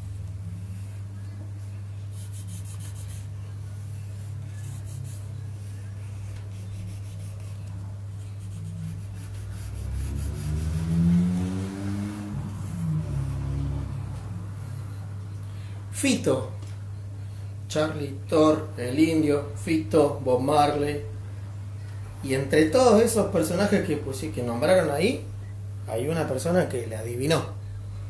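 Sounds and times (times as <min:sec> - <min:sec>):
steady low hum: 0:00.0 - 0:28.0
pencil scratching on paper: 0:02.0 - 0:11.1, 0:12.4 - 0:13.4
passing engine: 0:09.7 - 0:15.3.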